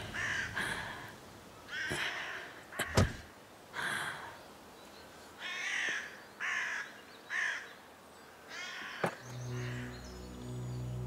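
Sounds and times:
crows cawing: 0:00.0 - 0:01.1, 0:01.7 - 0:03.3, 0:05.4 - 0:07.8, 0:08.5 - 0:10.0.

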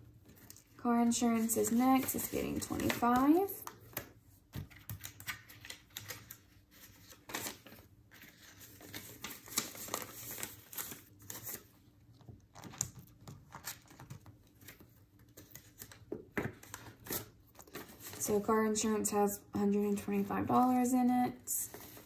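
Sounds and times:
paper envelopes shuffling: 0:00.1 - 0:19.1, 0:19.8 - 0:22.0
banknotes rustling: 0:00.2 - 0:11.8.

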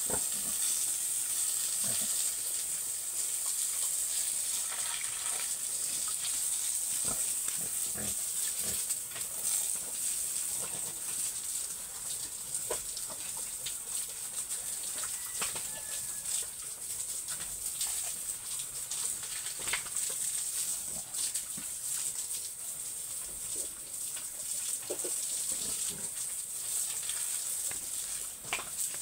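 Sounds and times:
pigs grunting: 0:01.8 - 0:02.2, 0:07.0 - 0:08.9.

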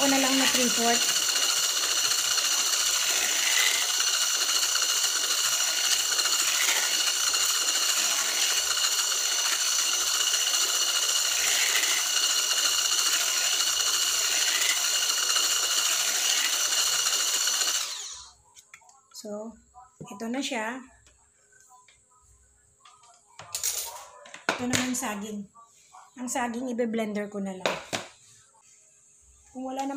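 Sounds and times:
electric hand mixer whining: 0:00.0 - 0:18.4.

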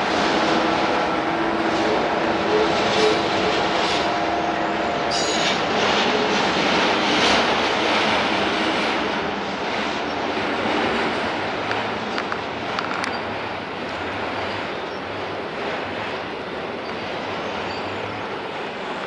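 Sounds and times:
train wheels rumbling on rail: 0:00.0 - 0:19.0
faint wheel squeal: 0:05.1 - 0:05.6.

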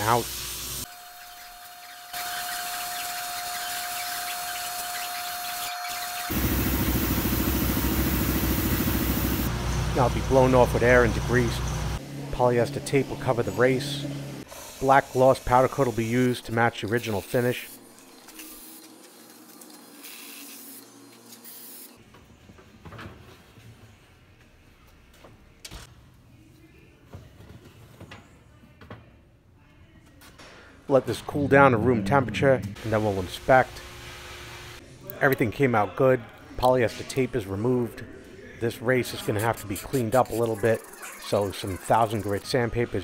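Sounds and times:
sandblast gun hissing: 0:06.3 - 0:09.5
low pulsing machine: 0:06.3 - 0:12.4, 0:31.4 - 0:34.4.

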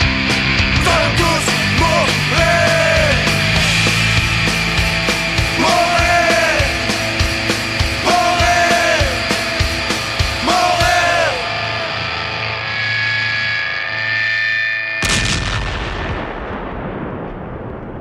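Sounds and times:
driving drums: 0:00.0 - 0:12.6
punk rock band playing: 0:00.0 - 0:14.1
distorted guitars: 0:00.0 - 0:15.4.

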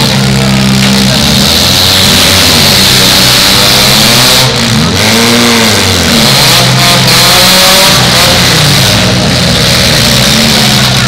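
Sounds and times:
car engines revving loudly: 0:00.0 - 0:11.0.

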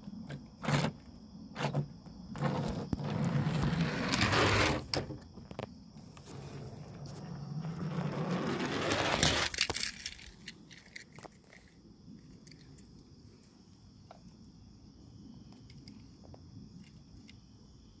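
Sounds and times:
crickets chirring: 0:00.0 - 0:18.0
toy car clicks: 0:09.4 - 0:11.8.

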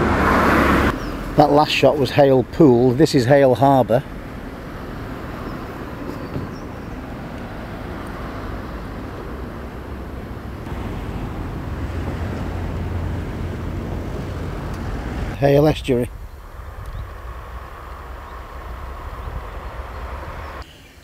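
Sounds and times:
low rumble: 0:04.0 - 0:20.6.

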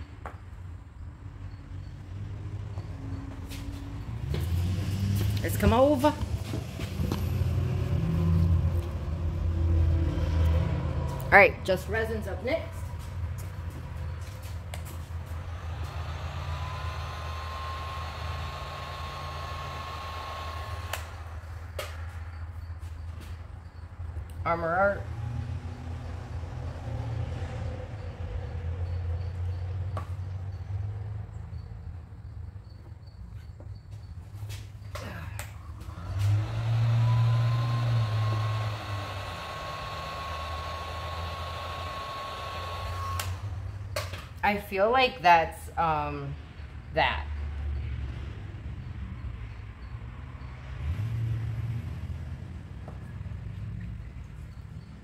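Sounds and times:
heat gun blowing air: 0:15.4 - 0:21.4, 0:35.9 - 0:43.5.

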